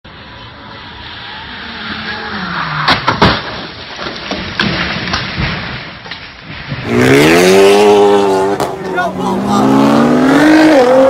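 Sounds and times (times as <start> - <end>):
car crash impacts: 2.8 - 7.2.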